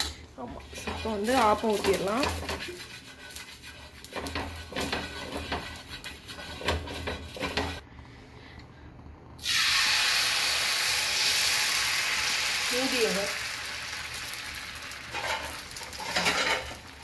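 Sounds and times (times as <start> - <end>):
batter sizzling on hot griddle: 0.6 - 7.8, 9.4 - 17.0
hand rubbing oil on hot griddle: 0.8 - 7.6.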